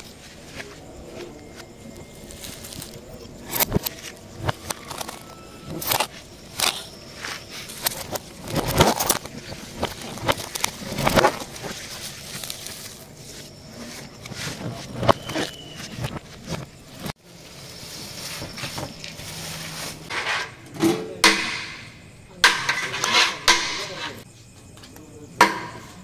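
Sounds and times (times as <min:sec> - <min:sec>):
cling film crinkling: 0:00.0 - 0:20.1.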